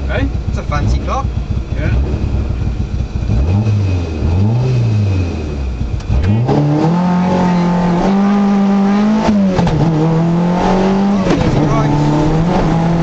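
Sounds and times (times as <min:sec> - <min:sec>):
rally car engine accelerating: 0:00.0 - 0:13.0.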